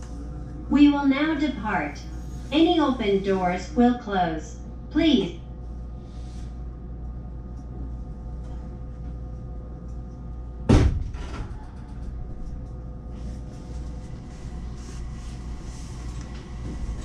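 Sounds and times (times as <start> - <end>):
electric train hum: 0.0 - 17.0
door thump: 10.7 - 11.3.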